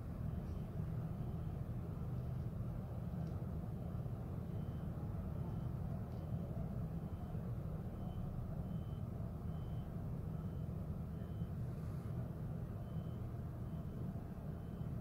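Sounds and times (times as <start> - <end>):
reversing alarm beeps: 0.2 - 1.6, 4.4 - 15.0.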